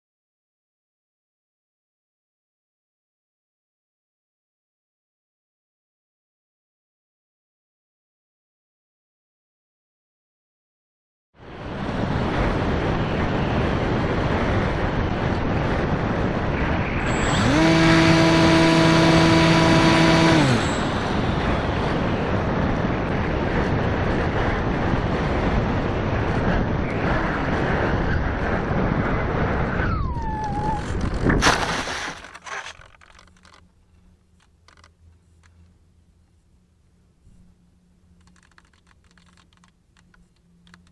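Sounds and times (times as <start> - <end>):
electric motor and propeller whine: 11.4 - 40.9
faint rustles and clicks: 30.5 - 36.6, 37.2 - 40.9
model plane thumping on grass: 31.0 - 33.6.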